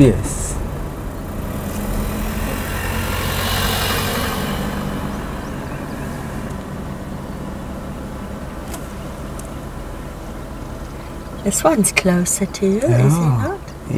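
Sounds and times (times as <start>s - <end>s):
rushing noise: 0.0s - 8.7s
vehicle engine humming: 0.0s - 13.9s.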